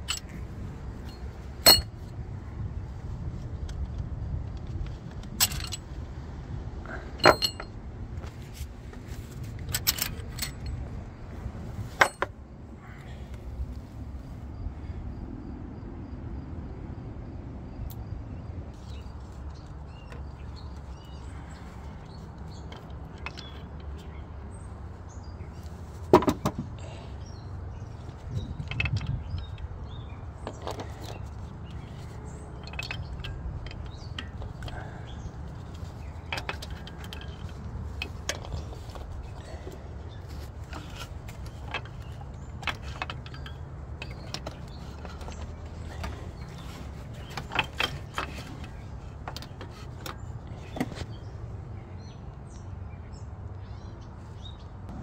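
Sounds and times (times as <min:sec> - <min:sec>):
metal parts clinking: 0:00.0 - 0:02.1, 0:05.2 - 0:05.9, 0:07.2 - 0:07.8, 0:09.6 - 0:10.9, 0:12.0 - 0:12.3, 0:21.6 - 0:24.0, 0:27.8 - 0:51.1.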